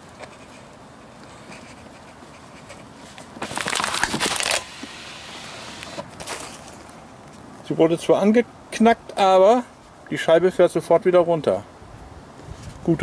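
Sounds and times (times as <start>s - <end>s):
plastic bottle crackling and crunching: 3.4s - 5.0s.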